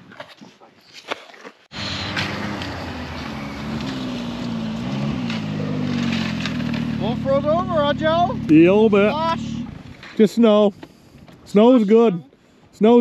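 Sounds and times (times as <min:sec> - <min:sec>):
snowmobile engine running: 0:01.7 - 0:10.4.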